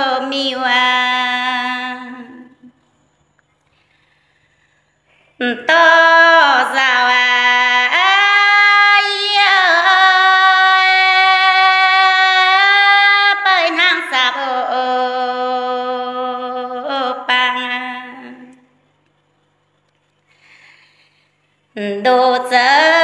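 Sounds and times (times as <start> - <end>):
woman singing unaccompanied: 0.0 - 2.8, 5.4 - 18.8, 21.7 - 23.0.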